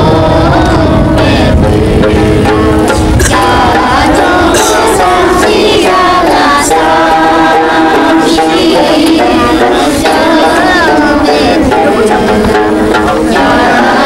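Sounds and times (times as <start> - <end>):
children singing together: 0.0 - 14.0
strummed lute: 0.0 - 14.0.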